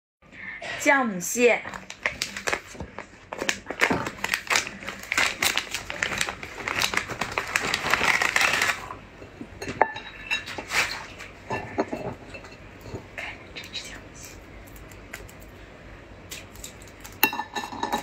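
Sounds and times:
plastic bag crinkling: 0:01.7 - 0:09.0.

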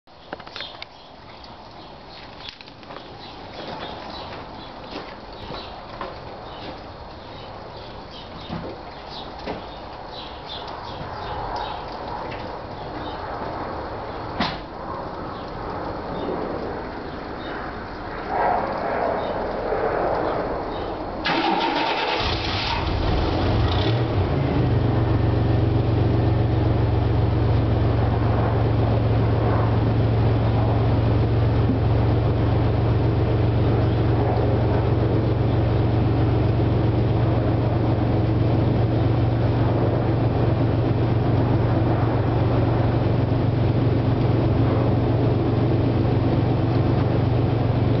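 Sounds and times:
car engine starting and idling: 0:21.2 - 0:27.8.

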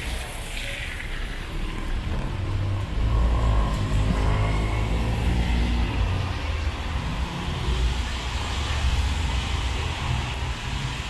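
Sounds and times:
tyres hissing on wet pavement: 0:04.6 - 0:11.0.

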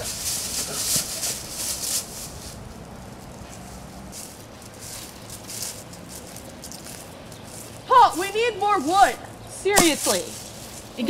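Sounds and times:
footsteps crunching dry leaves: 0:00.0 - 0:11.0.

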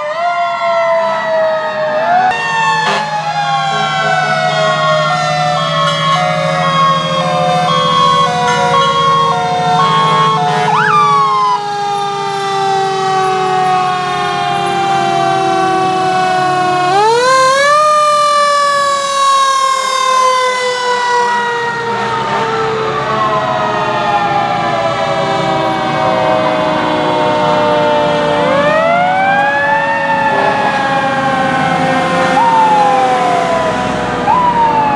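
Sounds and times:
mechanical sirens wailing: 0:00.0 - 0:34.9
horn blasts: 0:02.8 - 0:04.9, 0:05.5 - 0:11.3, 0:21.9 - 0:22.7.

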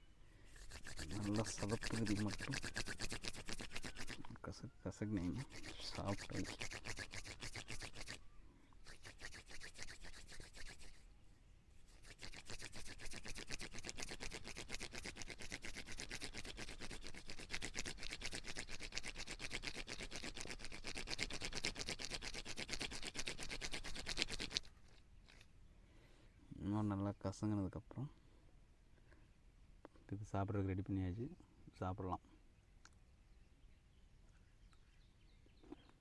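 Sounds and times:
palms rubbing a plant stem: 0:00.5 - 0:08.2, 0:08.8 - 0:11.1, 0:11.7 - 0:25.5.

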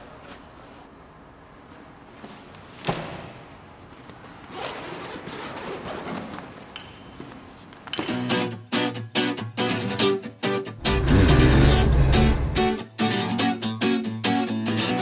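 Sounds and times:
backpack fabric handling: 0:04.2 - 0:06.7
backpack zipper rasping: 0:10.8 - 0:12.8.

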